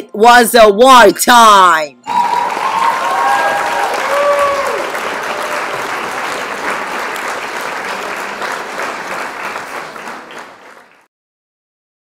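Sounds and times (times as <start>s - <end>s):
audience applauding: 2.1s - 11.1s.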